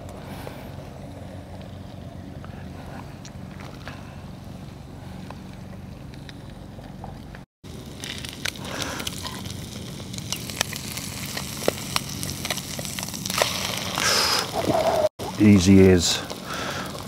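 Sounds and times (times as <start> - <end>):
low steady hum: 0.0 - 13.8
fritter sizzling in a frying pan: 7.7 - 14.6.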